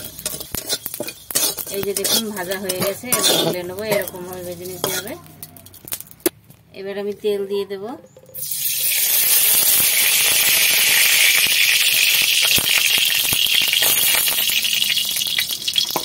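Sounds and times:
oil sizzling in a hot pan: 0:00.0 - 0:05.1, 0:08.4 - 0:16.0
small crackles: 0:00.0 - 0:06.7.

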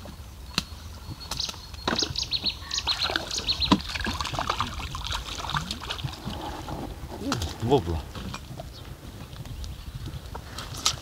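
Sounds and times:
small bird singing: 0:00.5 - 0:03.9
splashy noise: 0:02.8 - 0:06.5.

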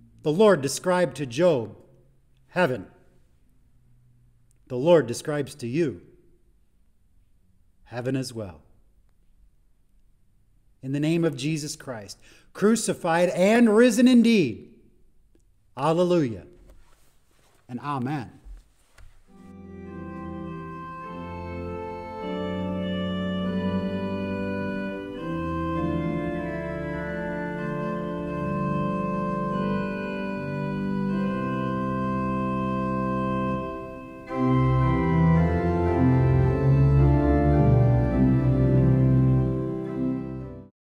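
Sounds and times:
organ playing sustained chords: 0:00.0 - 0:01.7, 0:19.3 - 0:40.7.

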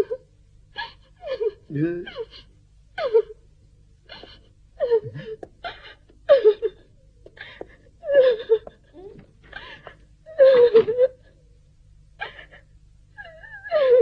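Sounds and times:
girl sobbing: 0:00.0 - 0:03.4, 0:04.1 - 0:11.4, 0:12.2 - 0:14.0.

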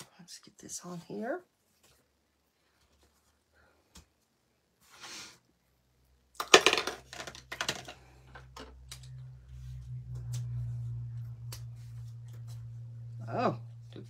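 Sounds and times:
low steady hum: 0:05.5 - 0:14.0.

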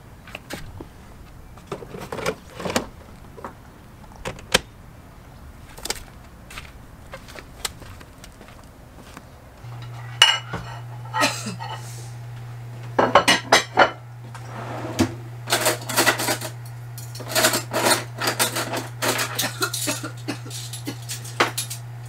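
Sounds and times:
dishes and cutlery clinking: 0:09.8 - 0:11.8, 0:13.0 - 0:14.0, 0:15.5 - 0:21.9.

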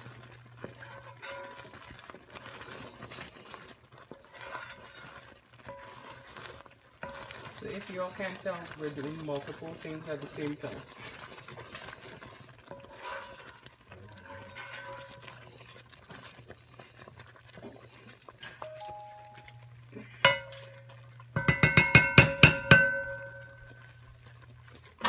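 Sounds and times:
spoon stirring thick fudge: 0:00.0 - 0:25.0
pot ringing: 0:14.2 - 0:15.5, 0:18.4 - 0:24.1
steady low hum: 0:18.4 - 0:24.8
spoon knocking metal pot: 0:18.6 - 0:19.5, 0:20.2 - 0:23.8.

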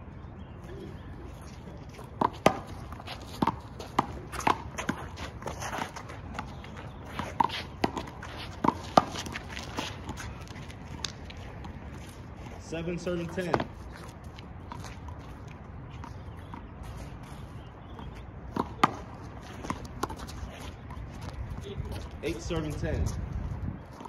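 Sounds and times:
sneaker footsteps scuffing: 0:01.4 - 0:12.6.

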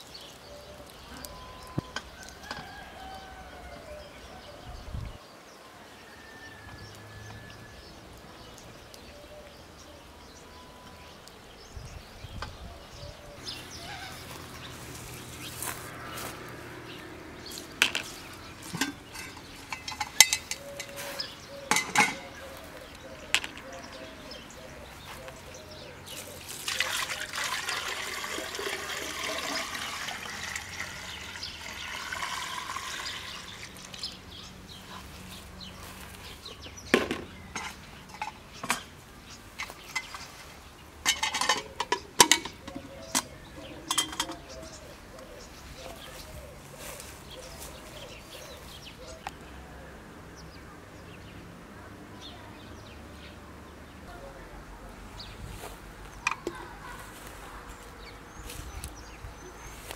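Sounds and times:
metallic clinks and knocks: 0:17.8 - 0:21.0, 0:21.7 - 0:22.3, 0:41.0 - 0:44.5
water pouring into metal vessel: 0:26.4 - 0:34.2.

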